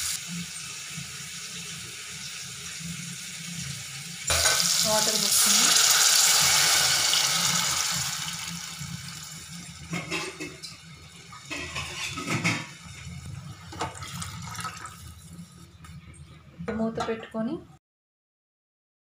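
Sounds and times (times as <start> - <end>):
water splashing into hot oil: 4.2 - 10.4, 13.8 - 15.2.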